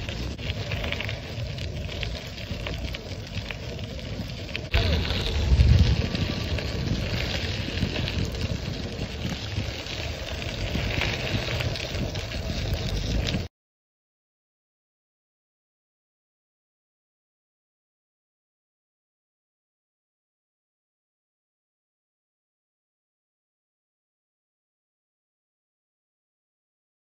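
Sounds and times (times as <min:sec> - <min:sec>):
tyres rolling over dirt: 0:00.0 - 0:13.5
wind buffeting microphone: 0:00.0 - 0:13.5.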